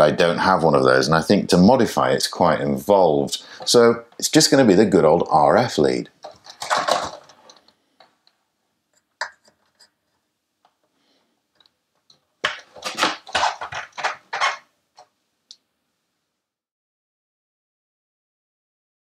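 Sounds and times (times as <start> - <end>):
quick knocks and rattles: 6.2 - 7.6, 12.4 - 14.7
plastic case handling clicks: 6.2 - 7.7, 12.4 - 14.6.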